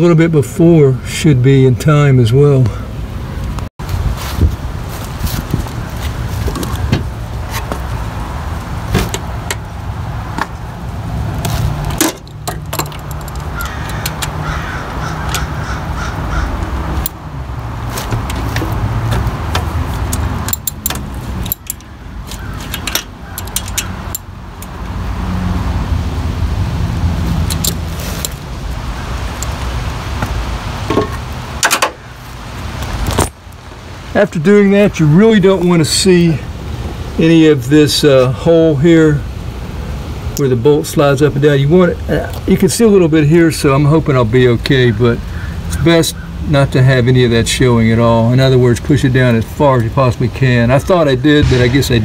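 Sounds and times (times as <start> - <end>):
metallic clicks of hand tools: 20.1 - 24.7.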